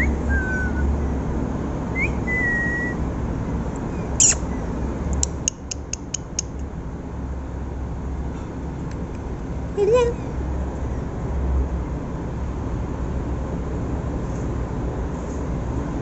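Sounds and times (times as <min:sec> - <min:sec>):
whistled notes: 0:00.0 - 0:00.9, 0:02.0 - 0:03.0
sharp clicks: 0:05.1 - 0:06.7.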